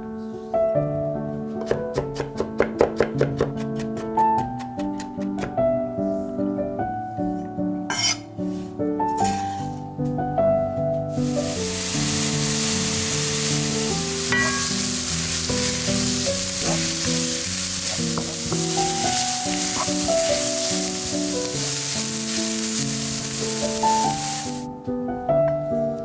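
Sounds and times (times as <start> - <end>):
soft background music: 0.0 - 26.0
onion sizzling in a frying pan: 11.1 - 24.7.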